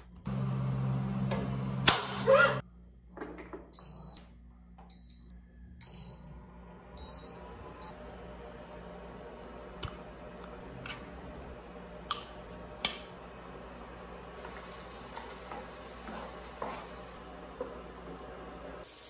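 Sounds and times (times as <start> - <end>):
appliance beeping: 3.6 - 4.2, 4.9 - 8.0.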